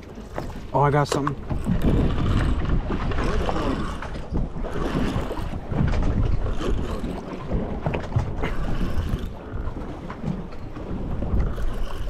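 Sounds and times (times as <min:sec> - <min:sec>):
wind rumble on microphone: 0:00.0 - 0:12.0
fishing reel gears whirring and clicking: 0:01.5 - 0:05.6, 0:06.4 - 0:07.4, 0:08.4 - 0:09.6, 0:11.4 - 0:12.0.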